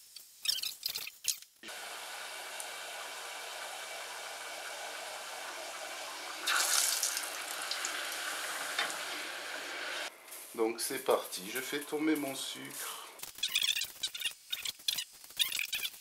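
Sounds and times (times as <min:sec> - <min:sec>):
dough sizzling in hot oil: 0:01.6 - 0:10.1.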